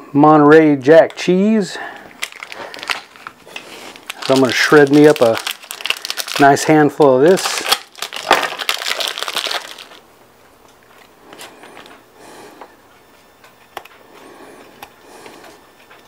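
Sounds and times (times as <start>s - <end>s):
plastic wrapper crinkling: 2.0s - 10.0s.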